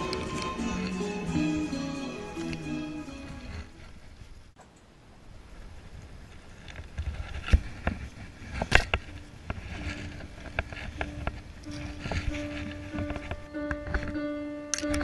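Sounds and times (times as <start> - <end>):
wind rumble on microphone: 3.3 - 14.2.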